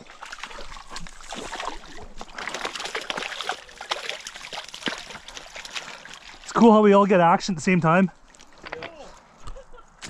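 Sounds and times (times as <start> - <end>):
fish splashing in shallow water: 0.0 - 6.5.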